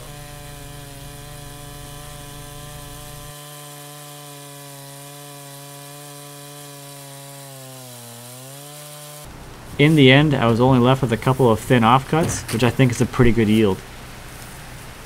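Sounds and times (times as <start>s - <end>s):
chainsaw cutting log: 0.0s - 9.3s.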